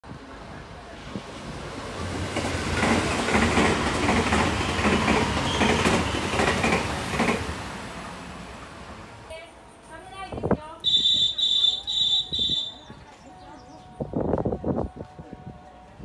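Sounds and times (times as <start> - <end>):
train low rumble: 0.0 - 10.2
train wheels clacking over rail joints: 2.3 - 7.4.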